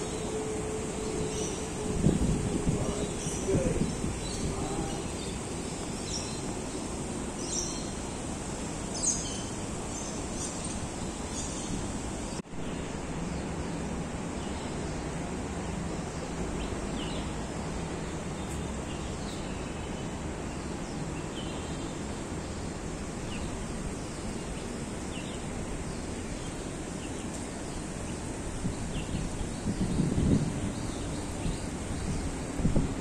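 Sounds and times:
wind on microphone: 0.8 - 6.2, 28.5 - 33.0.

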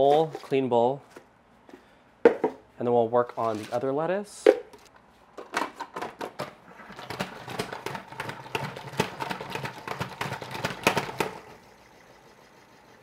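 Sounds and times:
salad spinner clattering: 6.7 - 13.0.

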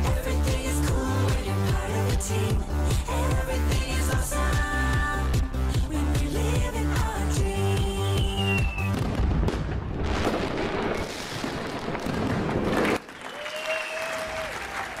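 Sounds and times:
applause and cheering: 12.1 - 15.0.

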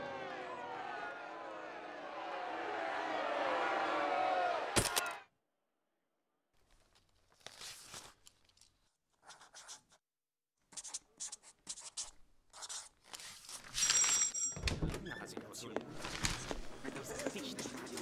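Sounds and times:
paper rustling: 6.6 - 9.7, 12.6 - 14.2, 15.9 - 18.0
pen scratching on paper: 9.2 - 10.0, 10.7 - 13.5.

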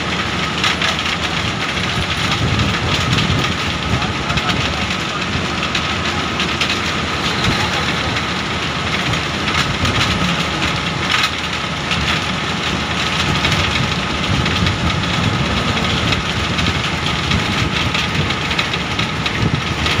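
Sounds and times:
vehicle rumble: 0.0 - 20.0.

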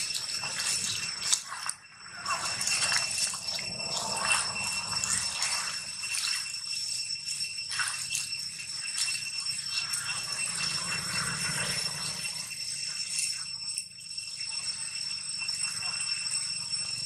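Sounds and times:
dry leaves rustling and crackling: 0.0 - 6.9
high-pitched ringing drone: 0.0 - 17.0.

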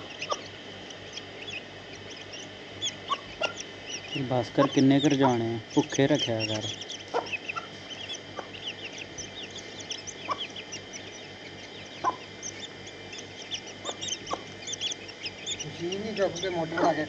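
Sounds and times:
chicks peeping: 0.0 - 17.0
hen clucking: 0.0 - 17.0.

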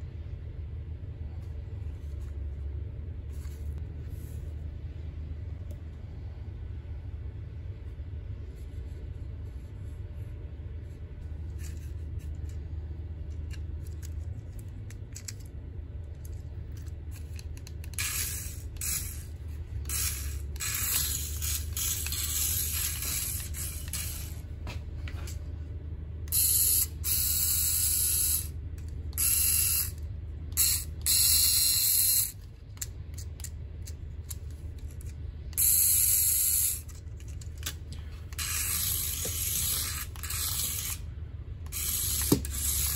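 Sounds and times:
steady low hum: 0.0 - 42.9
toy car motor whirring: 16.3 - 24.4, 26.3 - 42.9.

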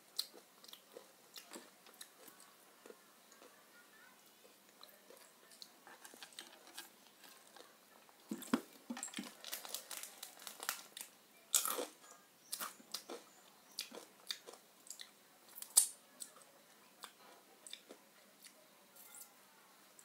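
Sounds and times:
person chewing crunchy food: 8.4 - 15.9.

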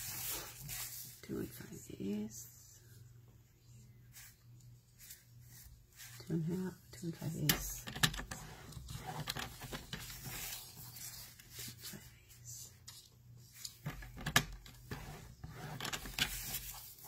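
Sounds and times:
low steady hum: 0.0 - 17.0
paper rubbing: 8.2 - 12.0, 14.8 - 17.0.

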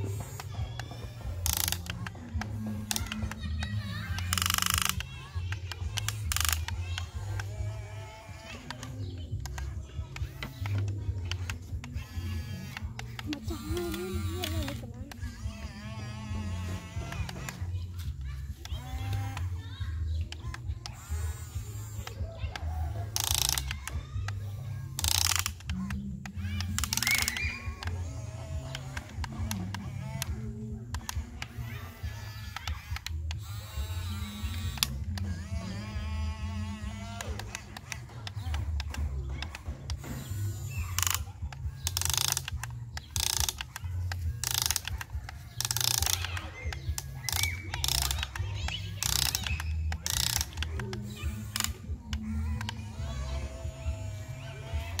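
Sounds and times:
electric gear motors whirring: 0.0 - 55.0.

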